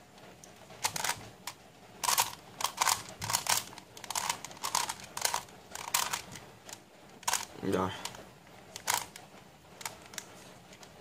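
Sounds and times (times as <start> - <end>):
plastic puzzle clicking: 0.8 - 1.2, 2.0 - 8.2, 8.8 - 9.2.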